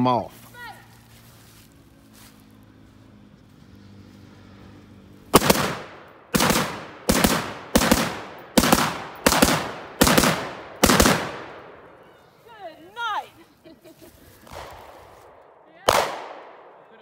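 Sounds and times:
rifle shots with echo: 5.3 - 12.2, 14.5 - 17.0.

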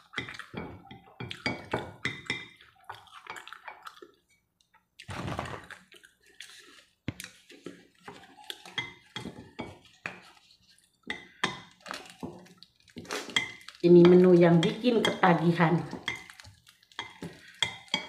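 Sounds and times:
slurping and chewing noodles: 0.0 - 14.8, 15.8 - 18.0
cracker packaging rustle: 11.7 - 13.9, 16.1 - 17.5.

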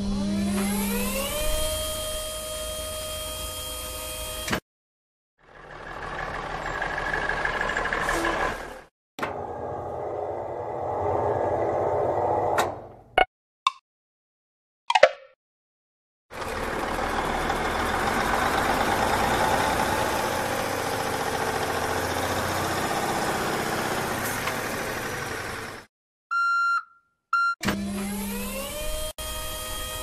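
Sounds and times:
motor whine rising in pitch: 0.0 - 4.5, 9.3 - 12.6, 16.4 - 25.8
cartoon truck engine running: 5.4 - 12.1, 16.3 - 25.9.

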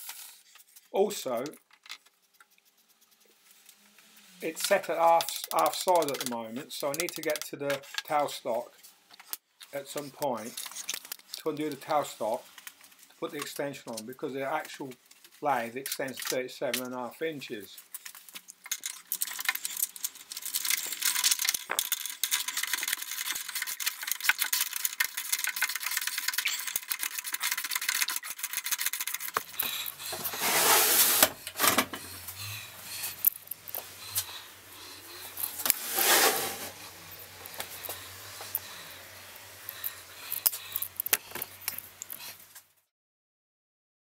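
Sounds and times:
metallic clicking and rubbing: 1.4 - 3.8, 17.8 - 32.3, 32.9 - 42.7
lathe base scraping on plywood: 30.1 - 31.4, 35.6 - 37.0.

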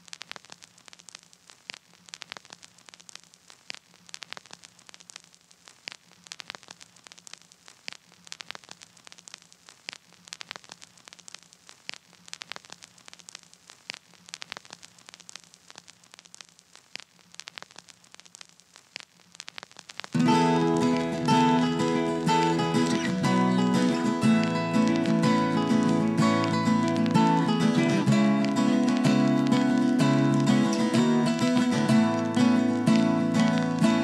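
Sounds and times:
crackling static: 0.0 - 34.0
guitar band music: 20.2 - 34.0.

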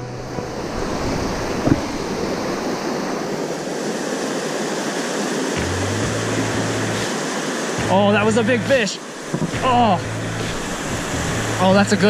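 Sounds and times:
creek rushing over rocks: 0.0 - 12.0
short knock: 9.3 - 9.7.

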